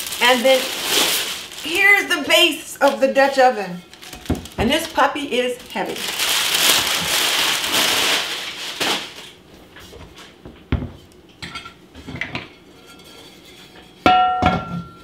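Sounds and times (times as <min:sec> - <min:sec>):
plastic wrap crinkling: 0:00.0 - 0:09.5
cast iron lid clanking: 0:11.4 - 0:15.0.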